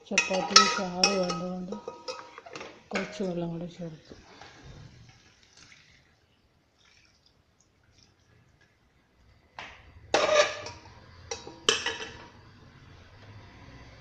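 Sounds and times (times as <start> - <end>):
metal cookware clanking: 0.0 - 3.7, 10.0 - 12.5.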